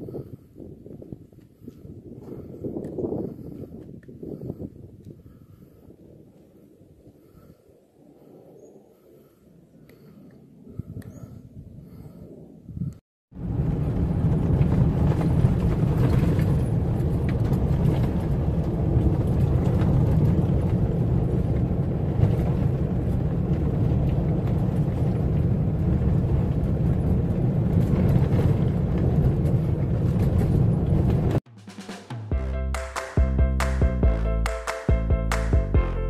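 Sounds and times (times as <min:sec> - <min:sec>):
vehicle rumbling on gravel: 0:13.4 - 0:31.4.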